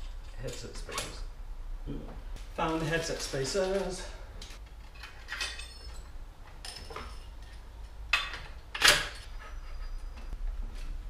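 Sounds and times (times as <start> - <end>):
metallic clinks of bicycle parts: 3.5 - 10.4.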